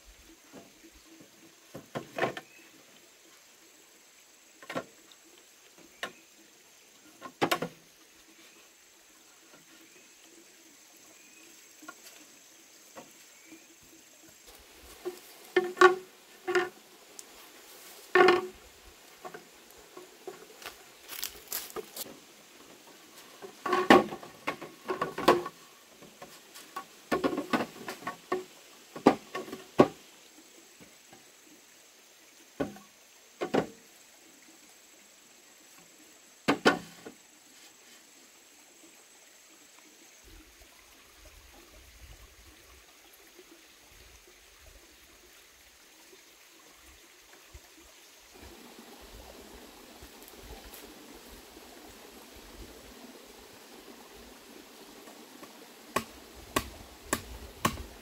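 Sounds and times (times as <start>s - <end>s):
faint background hiss: 0.0s - 58.0s
sharp hollow knocks and clatters: 56.0s - 57.9s.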